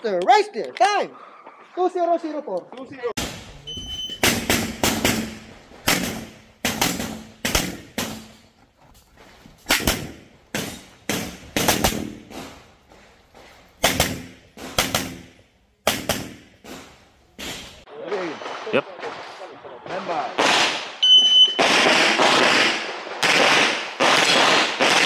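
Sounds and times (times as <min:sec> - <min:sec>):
handgun shots: 0:04.2 - 0:08.3.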